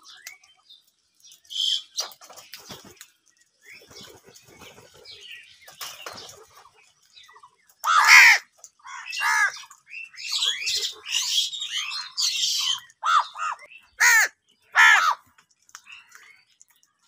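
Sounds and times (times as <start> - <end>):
wing flutters: 1.4 - 7.4
crows cawing: 7.8 - 9.7, 13.0 - 15.3.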